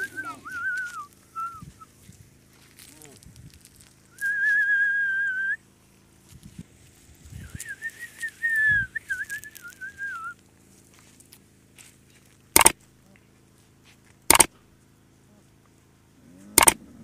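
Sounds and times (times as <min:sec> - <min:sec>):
person whistling: 0:00.0 - 0:01.9, 0:04.2 - 0:05.6, 0:07.4 - 0:10.4.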